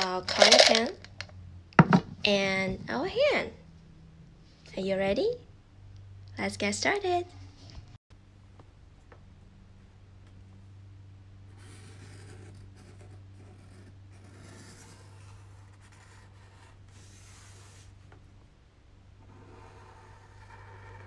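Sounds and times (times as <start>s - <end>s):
pen scratching on paper: 11.6s - 17.8s, 19.3s - 21.0s.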